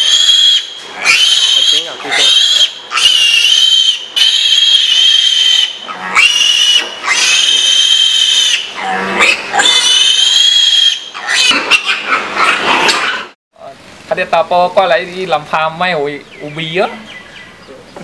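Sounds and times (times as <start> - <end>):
piglet squealing: 0.0 - 13.3.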